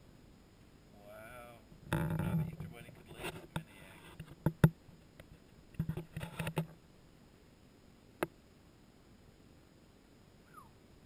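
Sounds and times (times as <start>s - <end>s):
light clicks and soft knocks: 1.8s - 6.8s.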